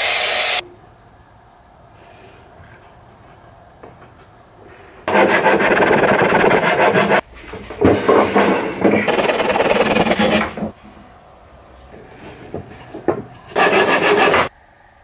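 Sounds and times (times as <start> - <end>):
hand saw rasping through wood: 5.1 - 7.2, 8.8 - 10.7, 13.5 - 14.5.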